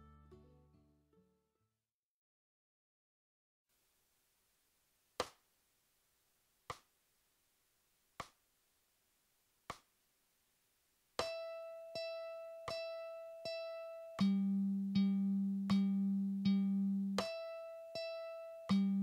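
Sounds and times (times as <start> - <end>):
mandolin string picked: 11.2 - 19.0
metronome ticking: 11.2 - 19.0.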